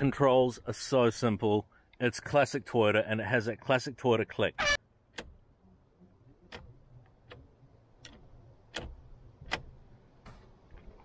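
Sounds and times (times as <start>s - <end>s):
control stalk clicking: 6.5s - 9.8s.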